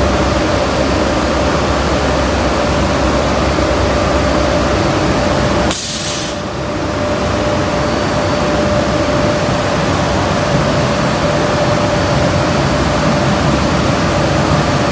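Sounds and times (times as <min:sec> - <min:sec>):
air extraction rushing and humming: 0:00.0 - 0:14.9
sharp high hiss: 0:05.7 - 0:06.5.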